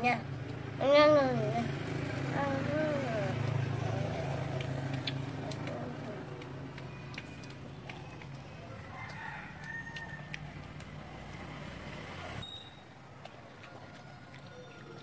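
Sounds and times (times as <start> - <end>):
rooster crowing: 8.7 - 10.6, 13.7 - 15.0.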